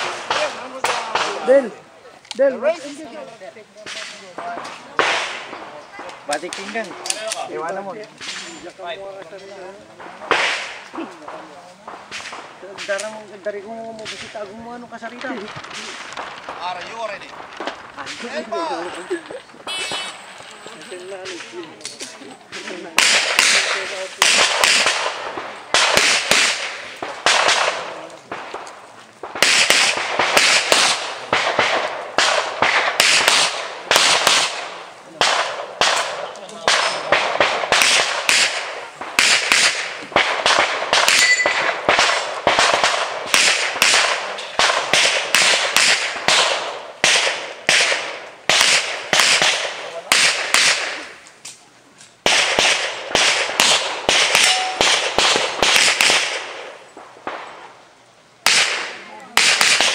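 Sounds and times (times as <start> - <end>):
pistol shots with echo: 0.0 - 1.7, 3.8 - 7.6, 10.0 - 13.1, 22.5 - 51.2, 52.2 - 57.6, 58.4 - 59.9.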